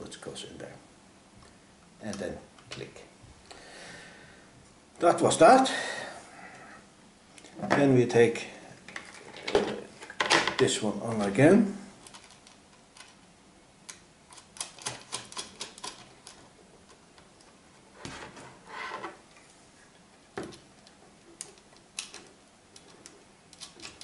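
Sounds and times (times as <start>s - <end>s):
plastic and metal parts clicking: 13.9s - 17.3s.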